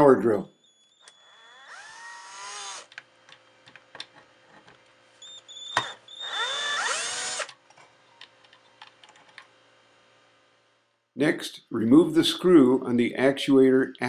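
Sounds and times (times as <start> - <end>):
power drill motor whine: 0.5 - 3.6, 5.2 - 7.6.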